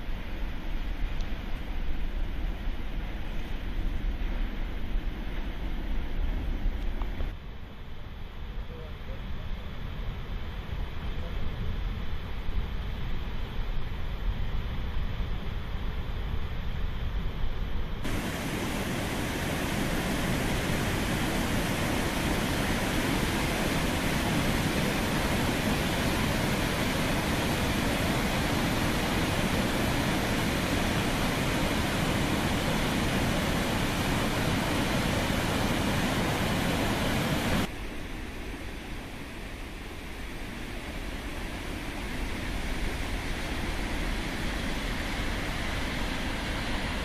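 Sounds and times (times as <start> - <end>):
water rushing over spillway: 18.0 - 38.3, 39.1 - 47.0.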